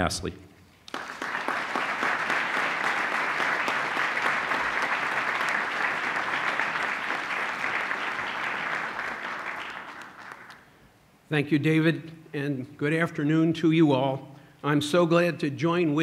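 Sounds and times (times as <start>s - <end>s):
large audience applauding: 0.8s - 10.8s.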